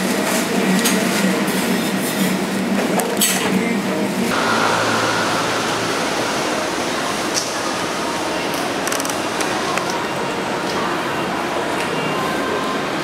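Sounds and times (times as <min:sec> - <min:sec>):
station concourse hum: 0:03.6 - 0:13.0.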